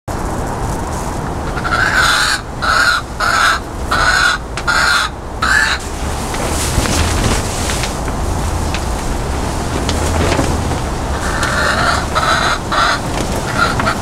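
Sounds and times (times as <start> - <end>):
bird giving harsh calls: 1.4 - 6.0, 11.0 - 14.0.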